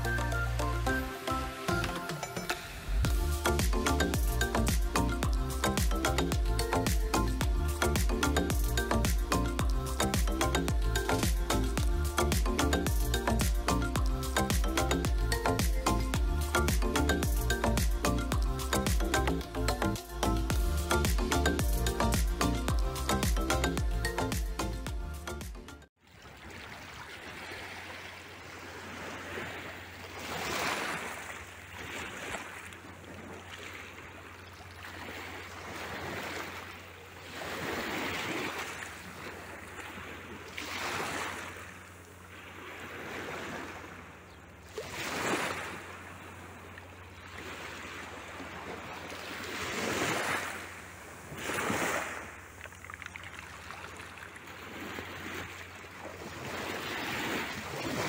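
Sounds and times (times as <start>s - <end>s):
waves lapping on pebble shore: 26.2s - 44.0s, 44.6s - 46.5s, 47.2s - 58.0s.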